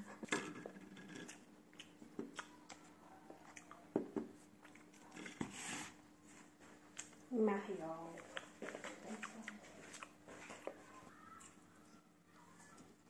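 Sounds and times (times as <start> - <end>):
person chewing crunchy food: 1.2 - 5.2, 8.2 - 11.6.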